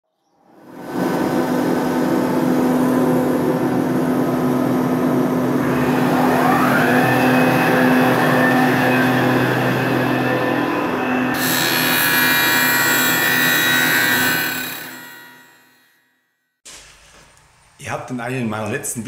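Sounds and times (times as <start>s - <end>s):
high-pitched whine: 0.5s - 15.8s
motor humming: 0.6s - 12.2s.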